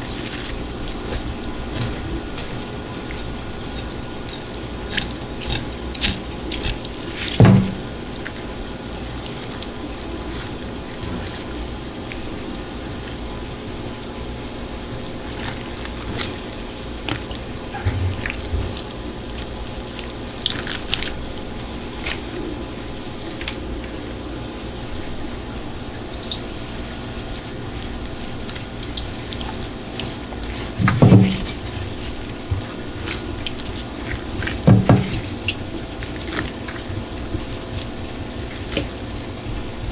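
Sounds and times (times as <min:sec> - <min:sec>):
small wet clicks: 0:00.0 - 0:14.0, 0:15.0 - 0:24.0, 0:25.6 - 0:39.9
wet squelching and dripping: 0:00.0 - 0:39.9
dull knocks: 0:07.4 - 0:07.9, 0:34.7 - 0:35.3.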